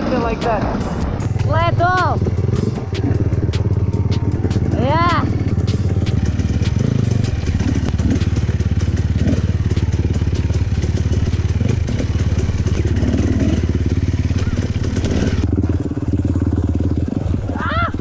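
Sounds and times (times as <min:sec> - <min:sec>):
dirt bike engine running: 0:00.0 - 0:18.0.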